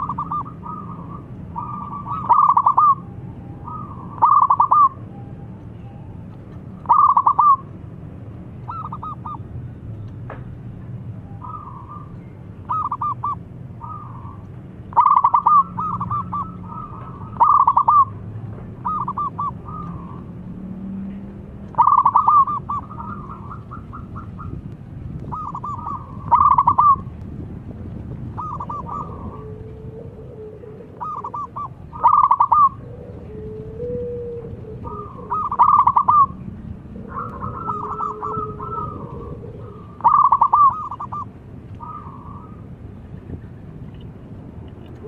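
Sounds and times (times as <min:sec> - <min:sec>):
dove cooing: 0:00.0 - 0:05.0, 0:06.8 - 0:07.7, 0:08.7 - 0:09.4, 0:11.4 - 0:18.2, 0:18.8 - 0:20.4, 0:21.7 - 0:24.6, 0:25.2 - 0:27.1, 0:28.3 - 0:42.6.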